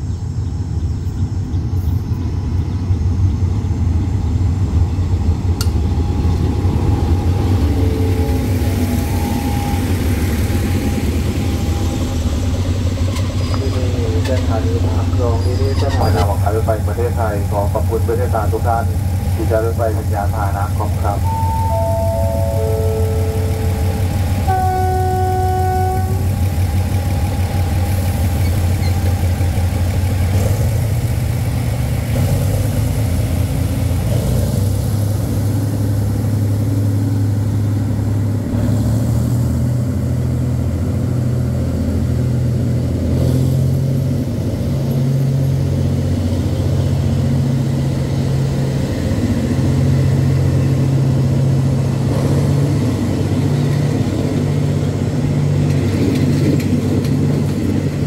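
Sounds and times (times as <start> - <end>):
diesel locomotive engine running: 0.0 - 58.0
train coaches rolling past: 0.0 - 58.0
locomotive horn blast: 20.6 - 27.0.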